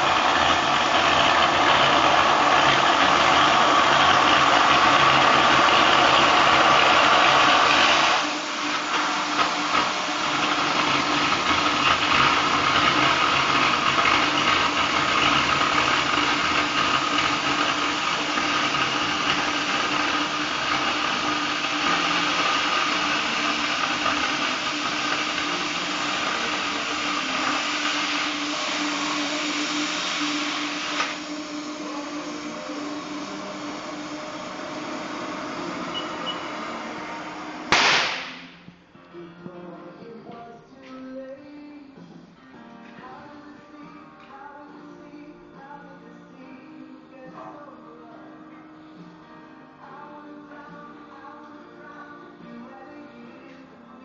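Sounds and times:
cutting torch gas hiss: 0.0s - 38.5s.

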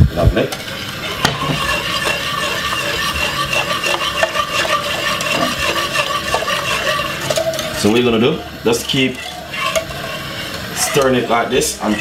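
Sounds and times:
whisk wires clicking against pot: 0.5s - 7.8s
wire whisk swishing in pot: 0.6s - 12.0s.

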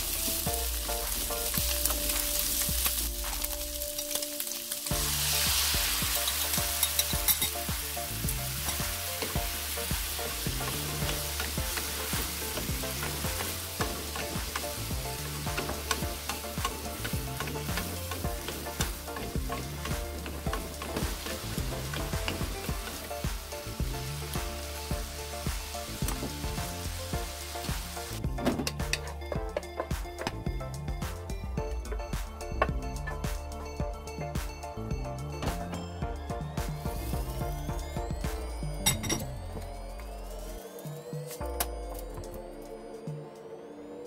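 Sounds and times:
sauce hissing in a hot pan: 0.0s - 28.2s
stir-fry sizzling: 0.0s - 30.0s, 35.4s - 39.1s.

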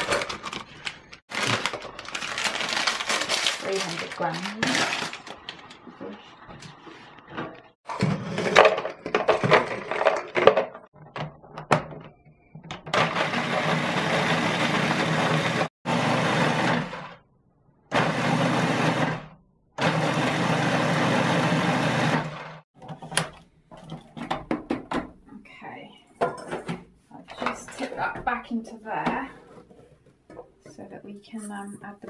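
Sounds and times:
food processor grinding: 7.9s - 10.8s, 13.0s - 17.2s, 17.9s - 22.6s.

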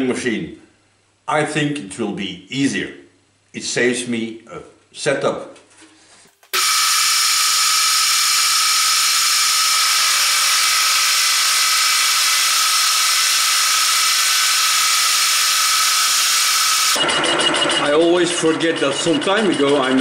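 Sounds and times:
milling machine running: 6.6s - 20.0s.

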